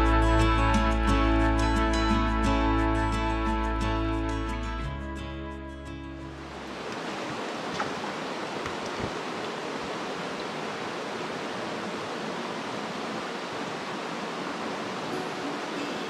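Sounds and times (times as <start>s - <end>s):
creek water rushing over rocks: 6.4s - 16.0s.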